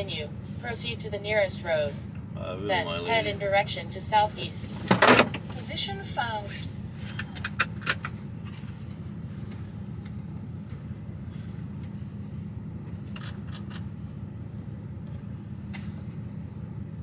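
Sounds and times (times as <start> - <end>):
diesel truck engine idling: 0.0 - 9.9.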